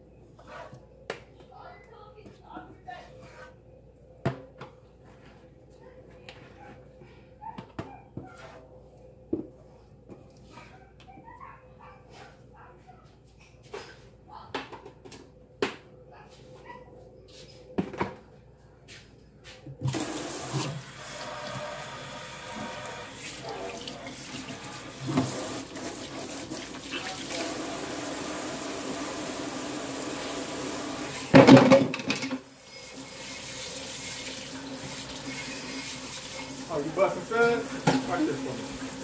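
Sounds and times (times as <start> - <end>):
tap running into steel sink: 37.7 - 38.2.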